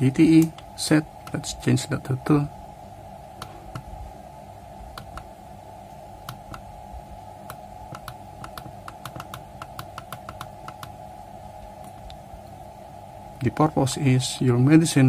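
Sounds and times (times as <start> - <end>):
keypad buttons clicking: 6.2 - 6.7, 7.4 - 10.9.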